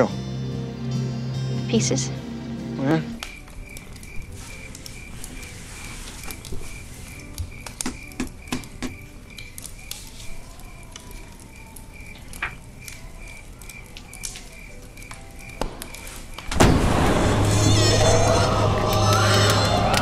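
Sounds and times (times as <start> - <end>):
log fire crackling: 0.4 - 20.0
loud flame blast: 15.6 - 20.0.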